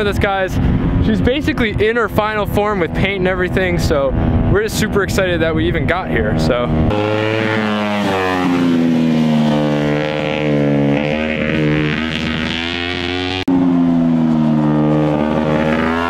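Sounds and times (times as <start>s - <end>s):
buggy engine driving past: 6.3s - 16.0s.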